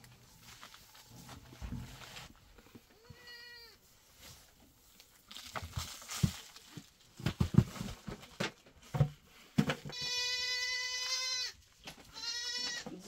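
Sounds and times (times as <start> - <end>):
goat bleating: 3.0 - 3.8, 9.9 - 13.0.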